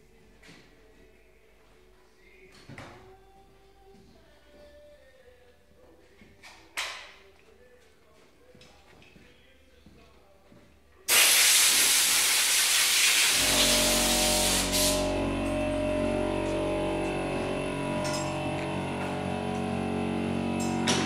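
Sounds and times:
hiss of rushing air: 0:11.1 - 0:15.0
machine humming: 0:12.9 - 0:21.0.

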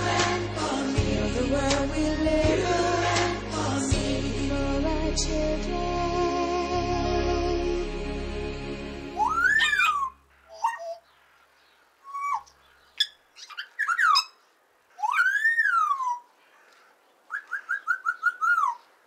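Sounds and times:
macaw calls: 0:09.2 - 0:19.0.

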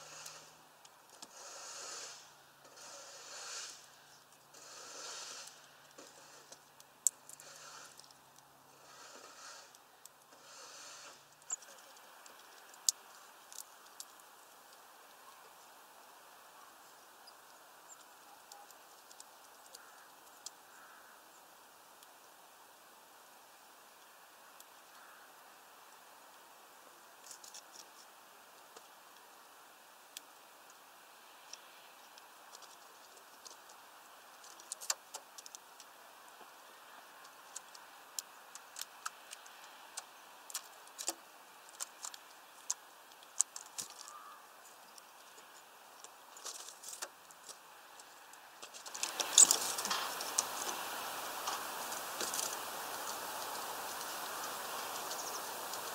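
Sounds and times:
steady hiss: 0:00.0 - 0:55.9.

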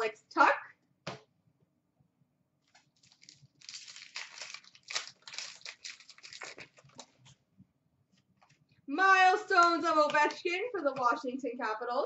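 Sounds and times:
foil wrapper crinkling and tearing: 0:02.6 - 0:07.3.

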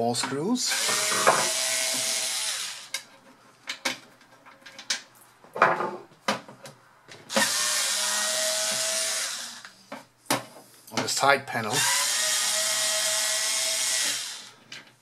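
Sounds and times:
electric screwdriver running: 0:00.7 - 0:02.9, 0:07.3 - 0:09.6, 0:11.8 - 0:14.6.

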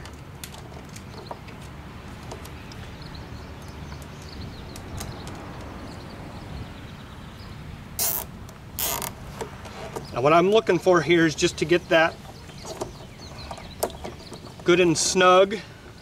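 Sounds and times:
zip tie pulled tight: 0:08.0 - 0:09.2.

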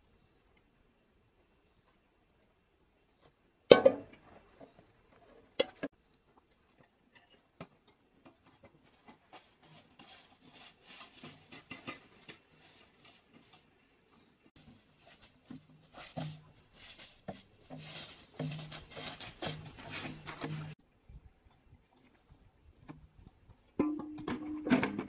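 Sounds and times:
footsteps on dirt and dry leaves: 0:14.6 - 0:20.8.

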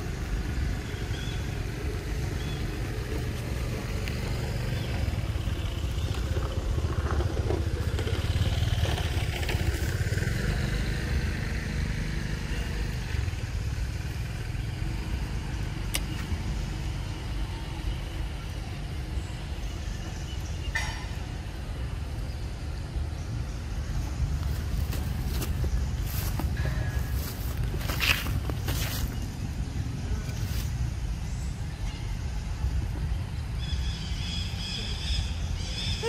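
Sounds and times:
vehicle passing: 0:00.0 - 0:19.8, 0:23.0 - 0:31.2
traffic rumble: 0:00.0 - 0:36.0.

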